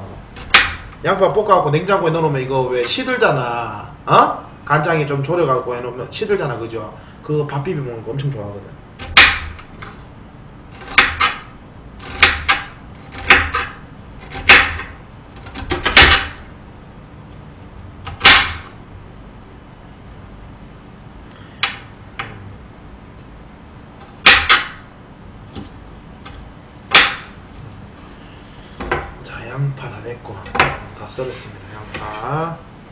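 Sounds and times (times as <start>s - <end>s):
knife chopping onion on board: 0.4s - 1.0s, 9.0s - 9.7s, 10.7s - 16.4s, 18.0s - 18.7s, 24.2s - 24.9s, 26.3s - 27.4s.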